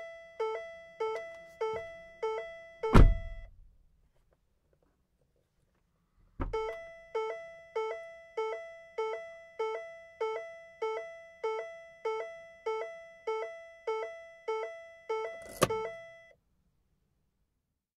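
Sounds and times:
car door warning chime: 0.0 - 3.5, 6.5 - 16.3
car door thunk: 2.9 - 3.4, 6.4 - 6.6.

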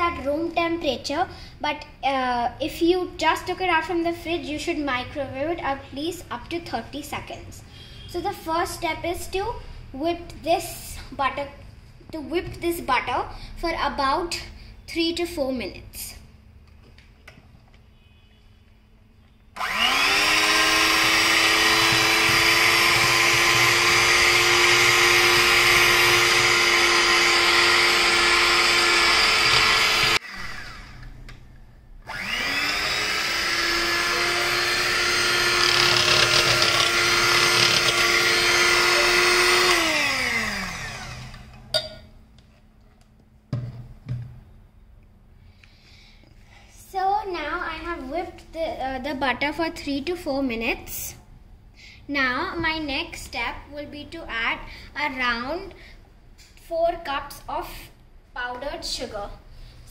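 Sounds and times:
electric hand mixer whining: 19.6 - 31.1, 32.0 - 41.6.

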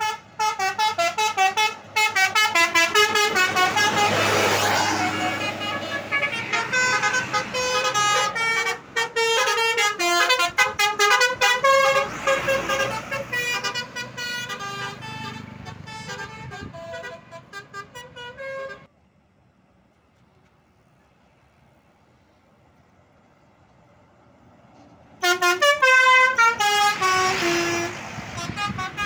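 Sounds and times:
musical bus horn melody: 0.0 - 18.9, 25.2 - 29.0.

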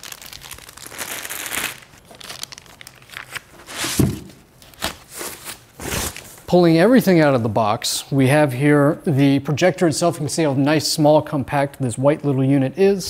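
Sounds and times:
plastic packing crinkling: 0.0 - 6.5.

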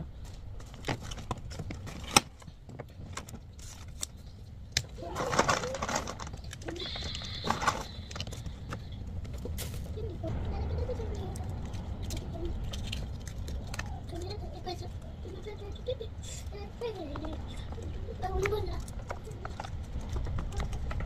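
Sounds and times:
cellophane crinkling: 0.6 - 10.1.

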